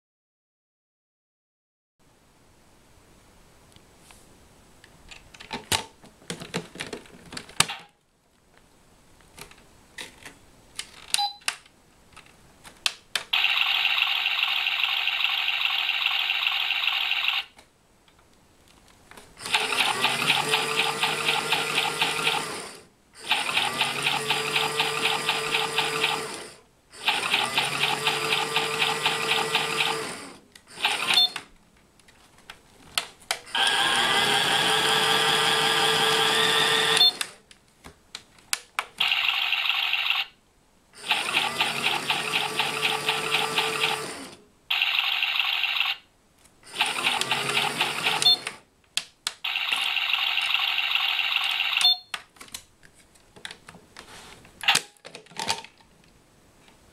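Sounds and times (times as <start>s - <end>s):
fast pulsing electronic whir: 19.4s - 31.3s, 33.5s - 37.2s, 41.0s - 45.9s, 46.7s - 48.5s.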